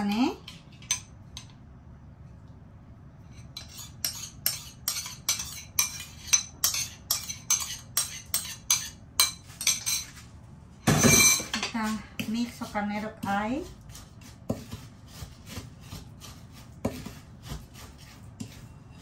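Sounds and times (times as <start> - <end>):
spoon scraping a ceramic bowl: 3.3 - 10.2, 11.0 - 19.0.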